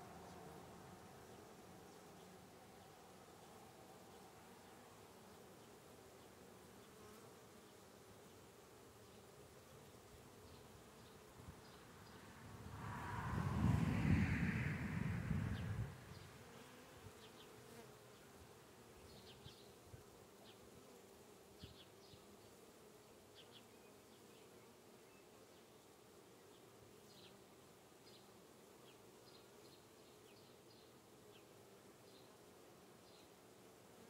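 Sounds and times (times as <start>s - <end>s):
low rumble: 12.4s - 16.2s.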